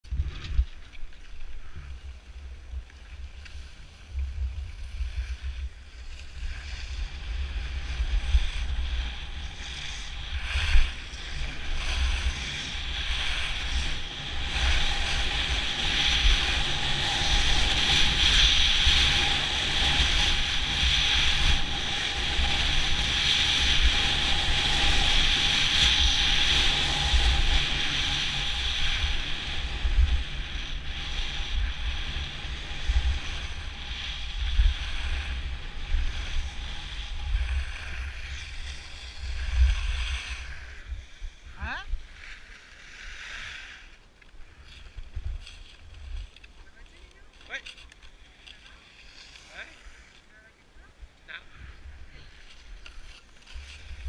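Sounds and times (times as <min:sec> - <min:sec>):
skis hissing on packed snow: 0:01.5 - 0:50.6, 0:51.2 - 0:54.0
wind buffeting microphone: 0:04.0 - 0:42.5.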